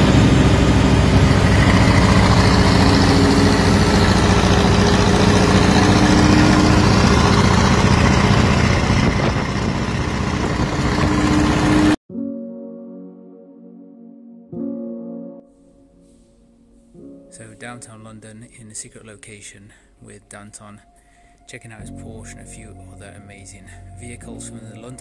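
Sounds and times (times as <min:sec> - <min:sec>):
car engine running steadily: 0:00.0 - 0:12.0
road and wind noise: 0:00.0 - 0:12.0.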